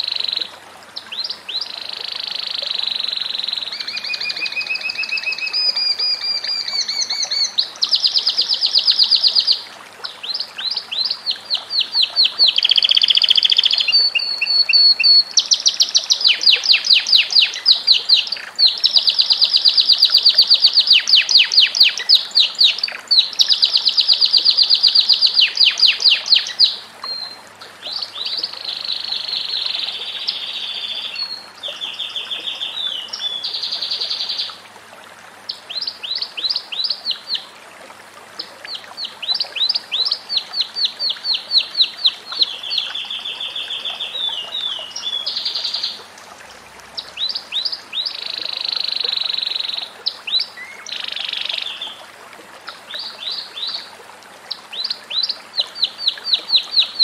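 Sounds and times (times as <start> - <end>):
canary singing trills: 10.3 - 27.3.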